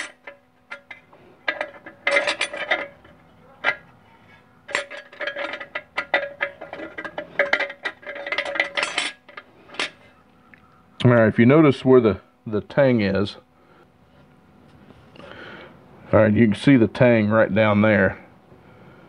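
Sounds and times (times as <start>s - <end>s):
metal clutch plates clinking: 0.0s - 10.1s.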